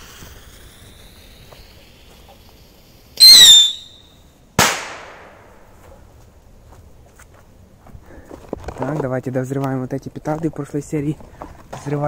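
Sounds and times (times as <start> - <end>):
fuse hissing: 0.0 - 4.2
firework whistle: 0.0 - 4.8
firework bang: 4.6 - 5.5.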